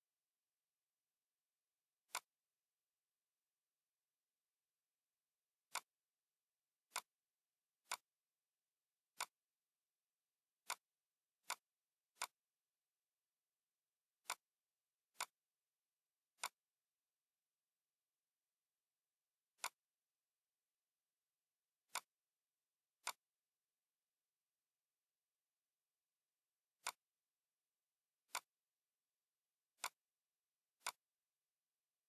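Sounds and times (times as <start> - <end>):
mouse button clicking: 2.1 - 2.3, 19.6 - 19.8.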